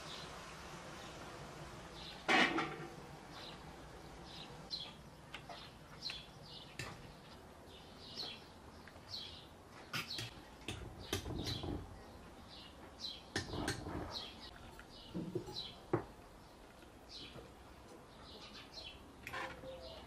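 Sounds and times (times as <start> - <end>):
small bird chirping: 4.3 - 10.3.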